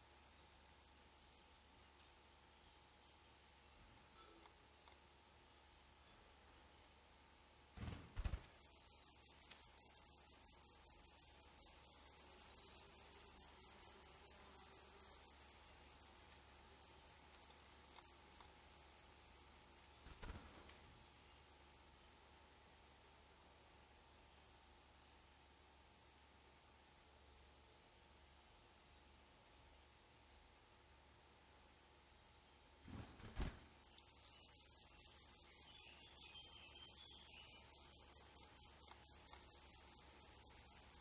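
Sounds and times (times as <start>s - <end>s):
nestlings begging calls: 8.5s - 22.4s, 33.8s - 41.0s.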